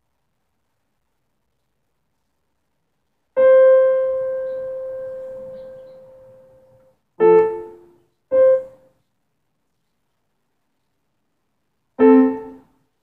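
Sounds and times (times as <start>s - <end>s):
piano notes and chords: 3.4s - 8.9s, 12.0s - 12.7s.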